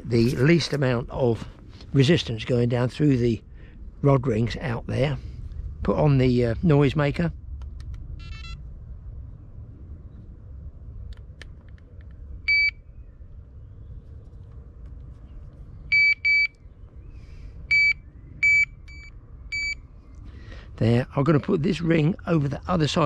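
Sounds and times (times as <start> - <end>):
bite alarm short beeps: 15.9 - 16.5, 17.7 - 19.8.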